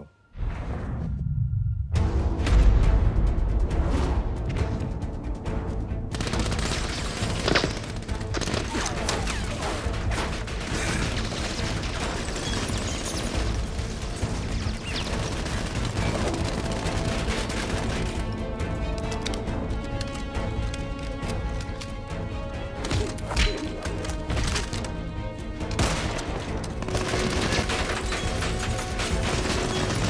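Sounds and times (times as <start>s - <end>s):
action film music: 0.0s - 30.0s
sharp bangs and hits: 25.6s - 30.0s.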